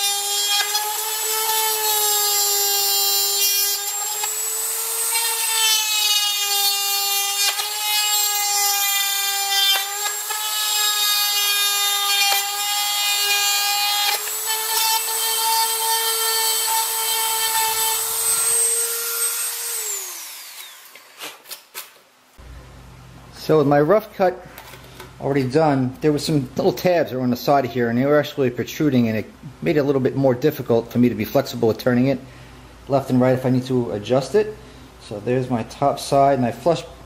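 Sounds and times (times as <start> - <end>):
rotary tool whining: 0.0 - 21.6.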